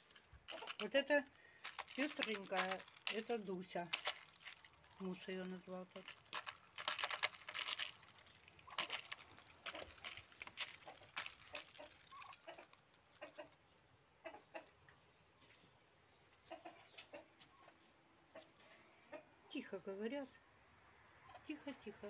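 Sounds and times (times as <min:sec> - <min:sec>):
duck bills clicking in grain: 0:00.0 - 0:13.6.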